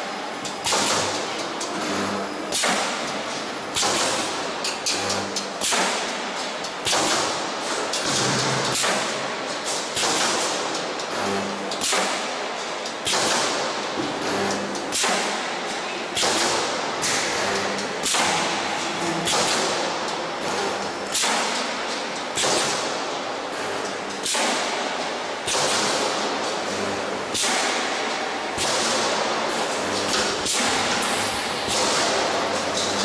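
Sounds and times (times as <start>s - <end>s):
pneumatic spot welder hit and hiss: 0.0s - 33.0s.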